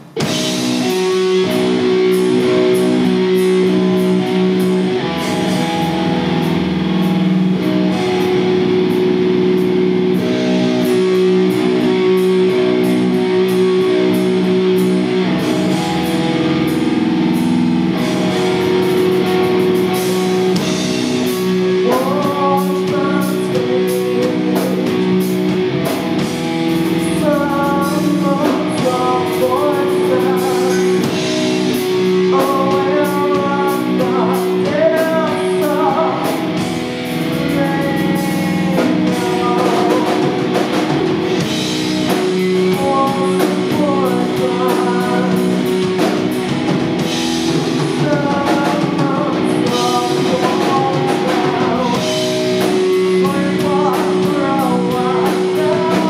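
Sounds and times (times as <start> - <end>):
rock band playing: 0.0 - 56.0
woman singing: 27.0 - 31.1, 32.3 - 36.4, 37.5 - 40.4, 42.7 - 45.6, 48.0 - 52.3.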